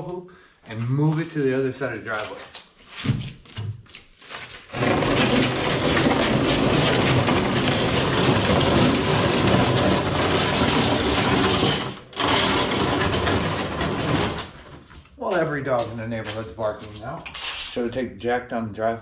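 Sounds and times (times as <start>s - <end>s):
basketball hoop base scraping driveway: 4.6s - 17.7s.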